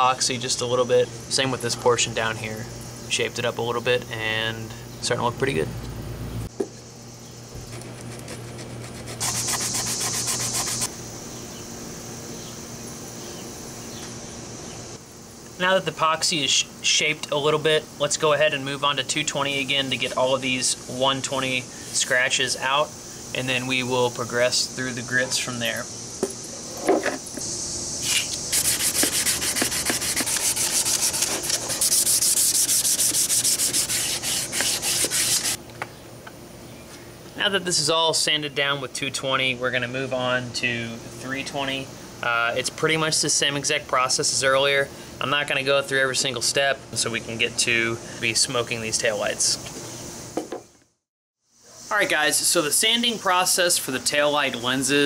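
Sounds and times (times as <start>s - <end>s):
sandpaper sanding plastic: 7.7s - 10.9s, 28.0s - 35.6s.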